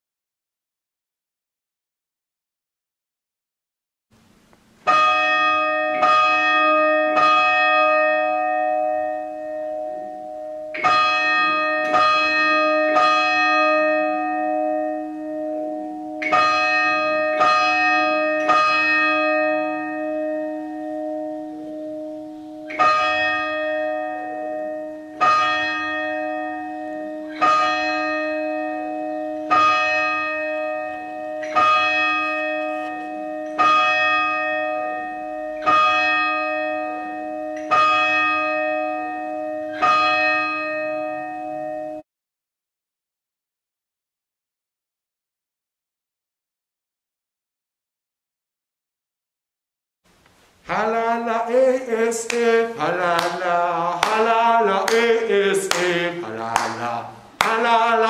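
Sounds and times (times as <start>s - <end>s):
church bell ringing: 4.8s - 42.0s, 50.7s - 58.0s.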